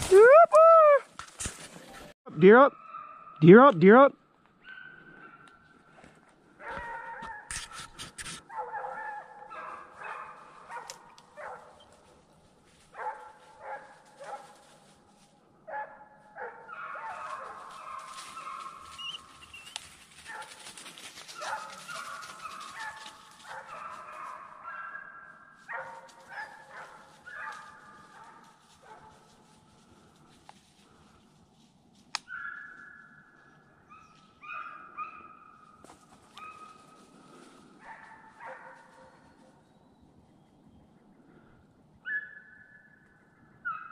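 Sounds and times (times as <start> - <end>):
hounds baying: 6.6 - 7.5, 8.4 - 12.0, 15.7 - 29.3, 32.2 - 39.7.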